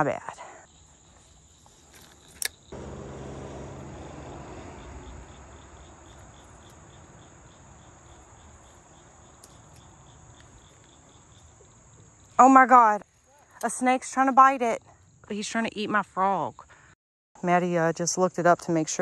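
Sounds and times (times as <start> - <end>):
insects chirping: 0.0 - 17.0
low rumble: 2.8 - 7.8.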